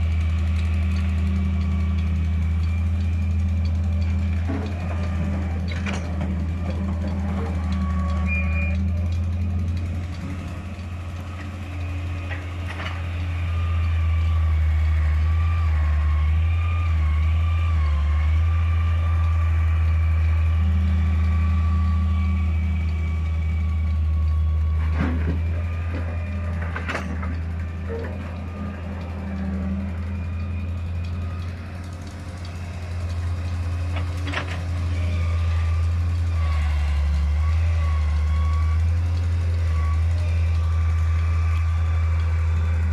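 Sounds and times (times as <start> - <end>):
diesel engines running: 0.0 - 42.9
thin wavering whine: 0.0 - 42.9.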